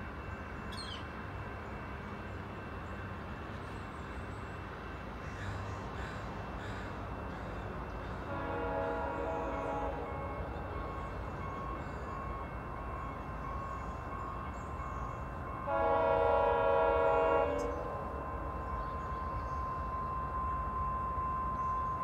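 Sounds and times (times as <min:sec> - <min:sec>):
low rumble of train: 0:00.0 - 0:22.0
train air horn blast: 0:08.2 - 0:10.6, 0:15.6 - 0:18.4.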